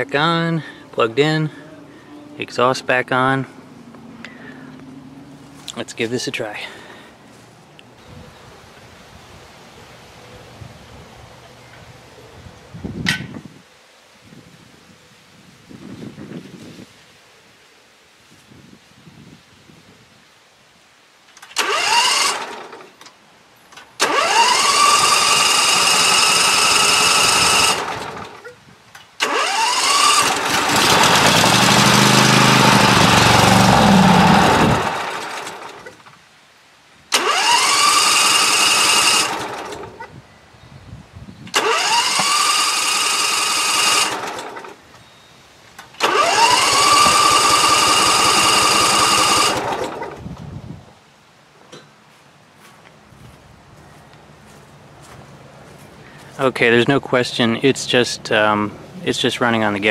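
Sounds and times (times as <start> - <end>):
electric starter cranking engine: 21.4 - 23.0, 23.8 - 28.4, 29.2 - 36.0, 37.1 - 40.0, 41.5 - 44.8, 45.8 - 50.2
mower engine running: 21.6 - 23.0, 24.0 - 28.5, 29.2 - 36.0, 37.1 - 40.1, 41.5 - 44.8, 46.0 - 50.2.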